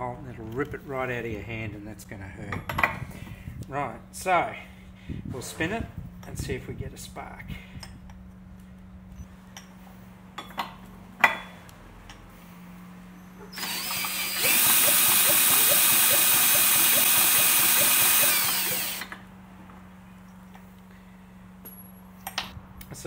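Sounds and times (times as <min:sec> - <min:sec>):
cordless drill spinning engine: 0:13.5 - 0:19.2.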